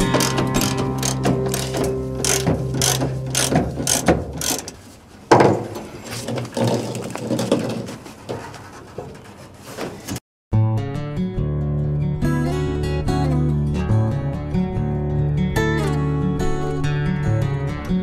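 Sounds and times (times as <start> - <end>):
ratchet wrench clicking: 0.0 - 4.8
metallic rattling and scraping: 0.0 - 10.2.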